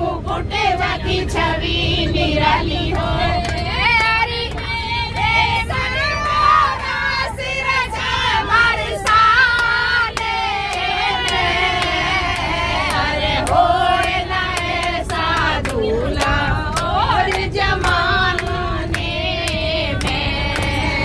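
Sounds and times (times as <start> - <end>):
low rumble of bus: 0.0 - 21.0
women singing together: 0.0 - 21.0
hand claps: 9.0 - 20.9.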